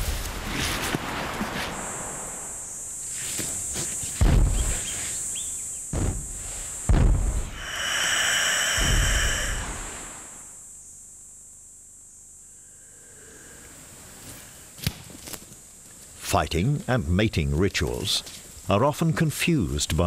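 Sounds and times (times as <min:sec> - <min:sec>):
high insect buzz: 0:00.0 - 0:16.3
heavy thuds and scuffs: 0:05.9 - 0:07.4
louder layered buzz: 0:07.3 - 0:10.8.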